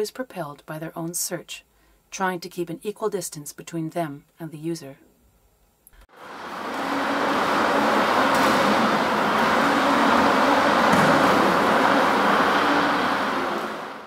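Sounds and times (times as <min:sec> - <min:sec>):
loud rushing noise: 0:06.1 - 0:14.0.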